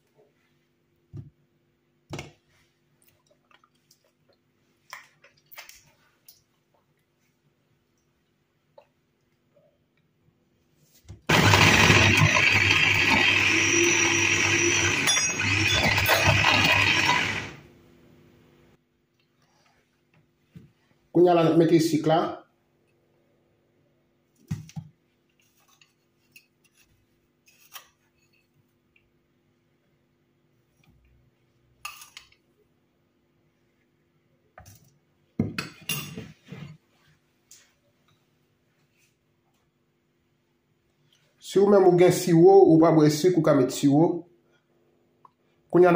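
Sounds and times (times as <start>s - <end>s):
electric food chopper whirring: 11.3s - 17.7s
spoon clinking and scraping bowl: 13.7s - 17.1s.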